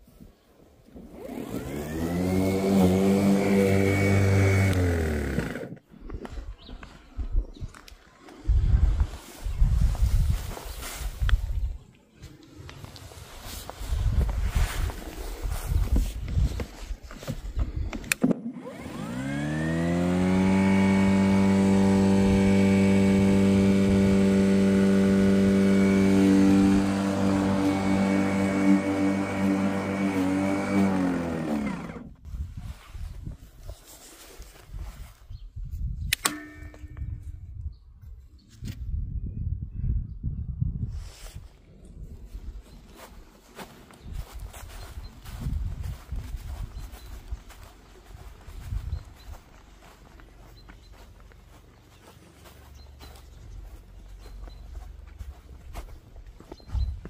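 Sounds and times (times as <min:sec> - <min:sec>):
electric lawn mower motor whining: 0:01.0 - 0:05.8, 0:18.0 - 0:32.2.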